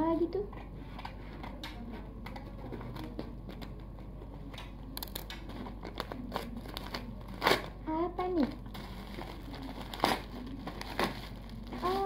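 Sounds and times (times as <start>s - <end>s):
plastic wrapping rustling: 5.5s - 12.0s.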